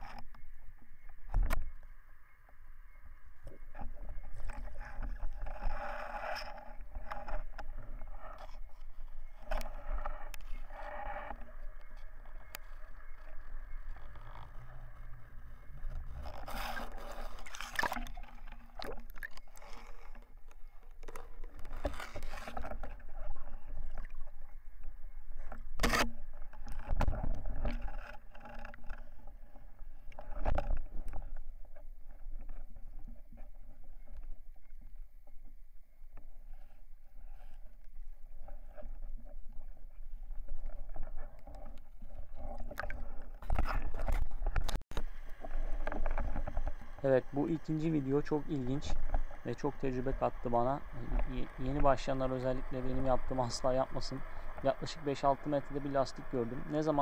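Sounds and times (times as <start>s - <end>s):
underwater rumble of moving water: 0.0s - 57.0s
clicks knocks and scrapes of speargun: 3.4s - 14.6s, 15.9s - 23.6s, 25.4s - 29.3s, 30.1s - 33.5s, 40.6s - 47.0s.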